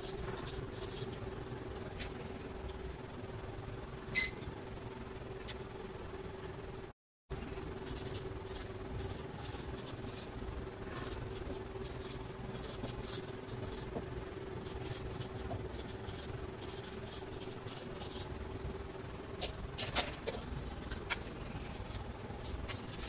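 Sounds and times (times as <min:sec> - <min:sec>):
faint steady hum: 0:00.0 - 0:23.0
marker scratching on paper: 0:07.8 - 0:14.0, 0:14.6 - 0:18.4.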